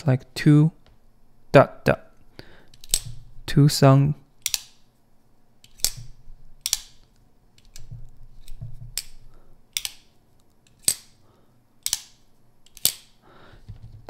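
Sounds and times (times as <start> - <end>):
folding knife lock clicking: 2.7 - 3.2, 4.4 - 4.8, 5.6 - 10.1, 11.8 - 13.2.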